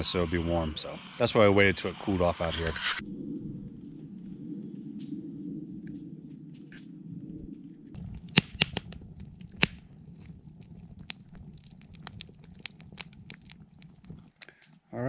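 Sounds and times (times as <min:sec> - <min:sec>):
campfire crackling and popping: 0:00.0 - 0:02.7, 0:07.9 - 0:14.8.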